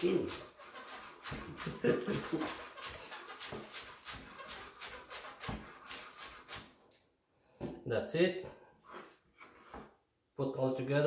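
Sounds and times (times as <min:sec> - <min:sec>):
knife chopping on wooden board: 0:00.0 - 0:06.8.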